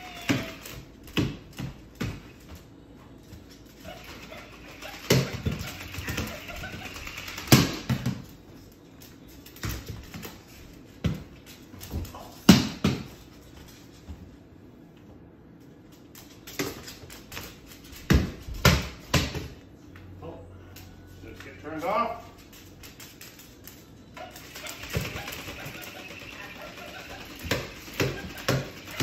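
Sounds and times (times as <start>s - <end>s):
knocks and thumps of toys: 24.6s - 29.0s.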